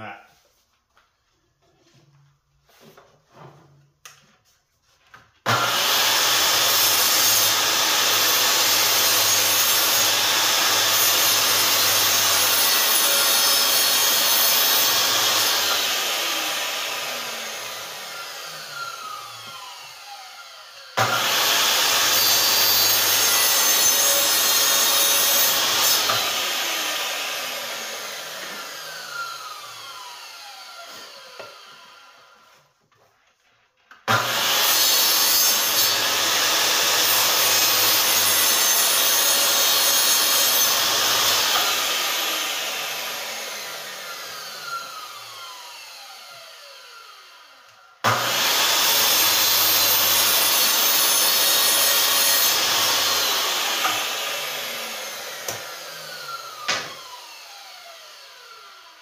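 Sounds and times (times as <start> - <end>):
miter saw cutting wood: 5.4 - 32.6, 34.0 - 59.0
saw blade spinning down whine: 40.7 - 59.0.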